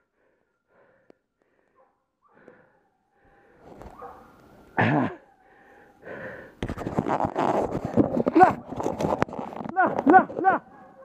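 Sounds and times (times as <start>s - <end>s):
undergrowth rustling and crackling: 6.7s - 10.4s.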